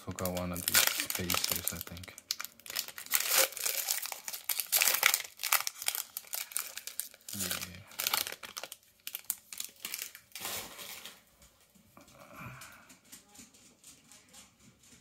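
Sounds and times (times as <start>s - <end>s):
foil wrapper crinkling and tearing: 0.1s - 11.2s.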